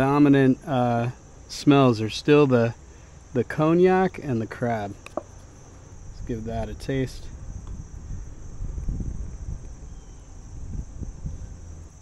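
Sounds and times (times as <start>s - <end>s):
high insect drone: 0.0s - 12.0s
wind buffeting microphone: 5.8s - 12.0s.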